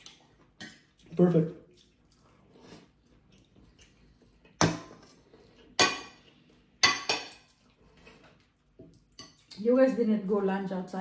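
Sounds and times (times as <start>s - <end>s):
forks clinking against plates: 6.8s - 7.5s.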